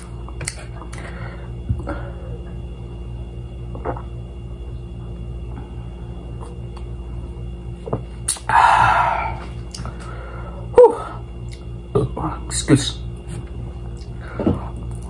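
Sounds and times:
background hum: 0.0 - 15.0
man gulping from a can: 3.7 - 4.1.

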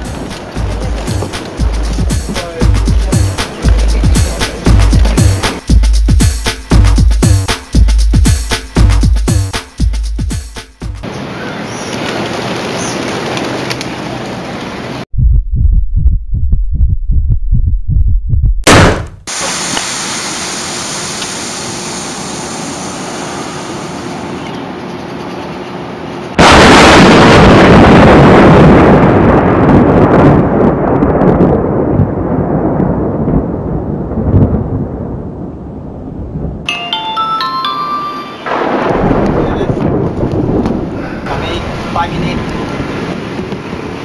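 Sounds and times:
thunderclap rumbling: 0.0 - 5.9, 26.4 - 36.7, 38.5 - 44.0
steady hiss: 19.3 - 24.2
bright chiming notes: 36.7 - 39.0.

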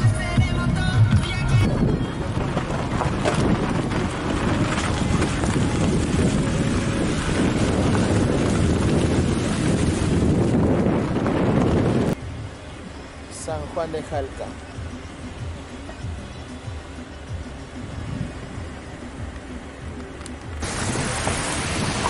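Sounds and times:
car road noise: 0.0 - 22.0
wind rushing over microphone: 1.1 - 12.5, 17.8 - 18.7, 20.6 - 22.0.

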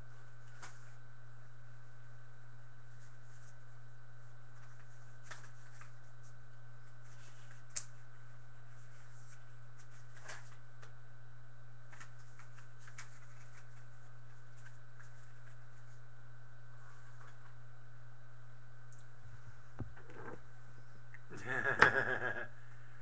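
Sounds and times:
faint high whine: 0.0 - 23.0
steady low hum: 0.0 - 23.0
faint clicks and rustles: 11.9 - 16.0.

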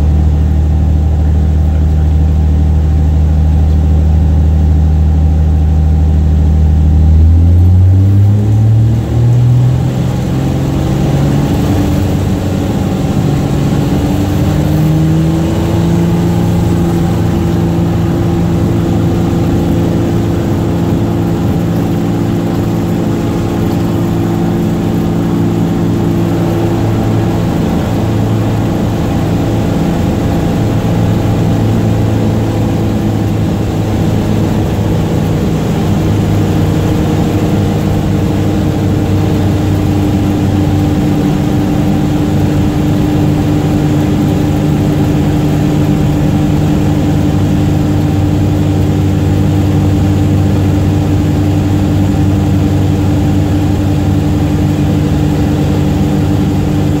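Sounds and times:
propeller airplane engine drone: 0.0 - 57.0.

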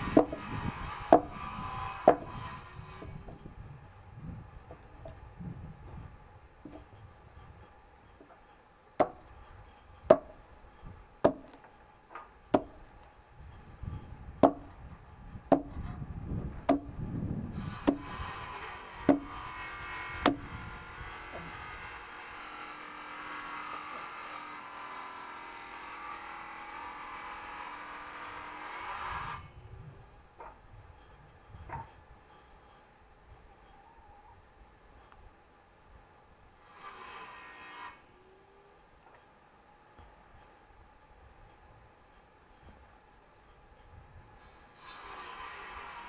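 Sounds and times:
axe splitting firewood: 0.0 - 2.4, 9.0 - 9.3, 10.1 - 10.4, 11.2 - 12.8, 14.4 - 14.8, 15.5 - 16.0, 16.6 - 20.6
mechanical hum: 0.0 - 46.0.

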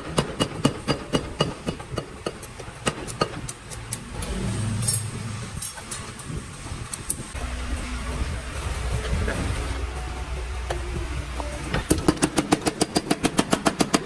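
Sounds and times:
power hammer striking hot steel: 0.0 - 6.4
low mechanical hum: 0.0 - 14.0.

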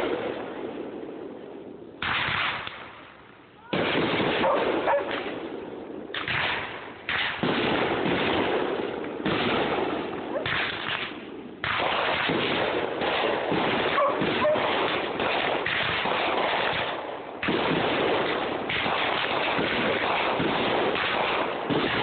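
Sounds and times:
firework bangs: 0.0 - 22.0
noisy rush of fireworks: 0.0 - 22.0.

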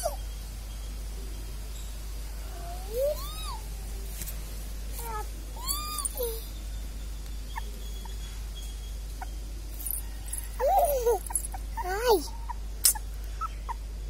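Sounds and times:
puppy whining: 0.0 - 0.2, 2.6 - 3.7, 5.0 - 6.5, 7.5 - 13.8.

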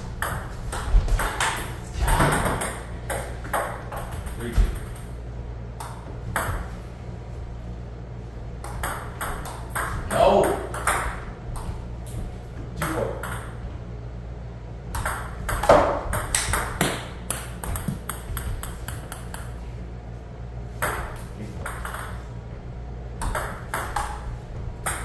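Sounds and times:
ping-pong ball clicking: 8.6 - 11.7, 15.0 - 19.5, 20.8 - 22.2, 23.2 - 25.0.

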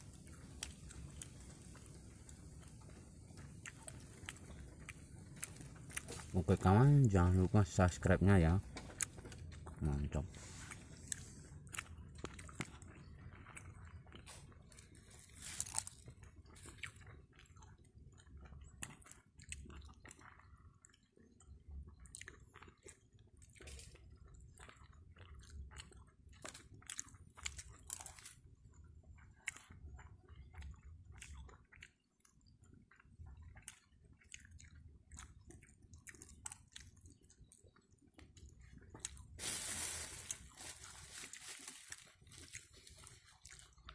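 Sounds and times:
person chewing food: 0.0 - 43.9
rustling: 39.4 - 43.2.

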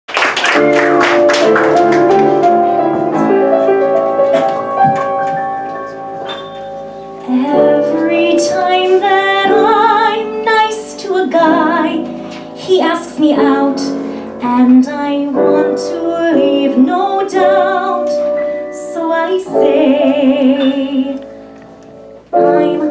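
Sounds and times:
piano playing: 0.1 - 22.9
woman singing with vibrato: 7.2 - 21.2, 22.4 - 22.9.

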